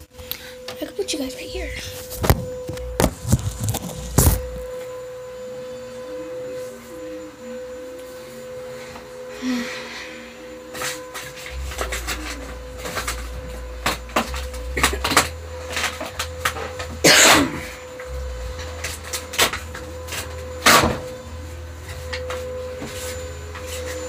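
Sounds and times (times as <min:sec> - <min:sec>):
faint steady hum: 0:00.0 - 0:24.0
low rumble: 0:01.6 - 0:04.7, 0:10.3 - 0:23.6.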